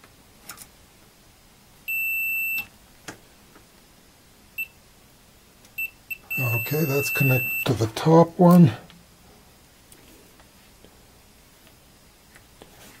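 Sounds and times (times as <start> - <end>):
multimeter continuity beep: 1.9 - 2.7, 4.6 - 4.8, 5.8 - 7.9
short chirps of beeper: 5.8 - 7.7.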